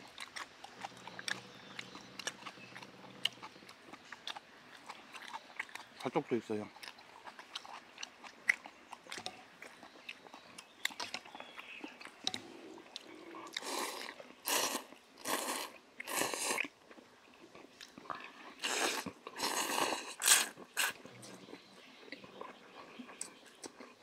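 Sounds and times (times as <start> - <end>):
noodle slurping: 13.5 - 16.7, 18.5 - 21.1.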